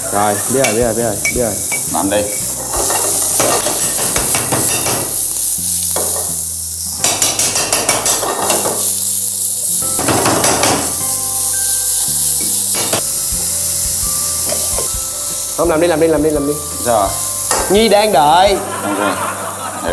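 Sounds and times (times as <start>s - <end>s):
mushrooms sizzling in oil: 0.0s - 19.9s
frying pan clicks: 2.8s - 5.2s, 7.0s - 8.8s, 10.0s - 11.0s.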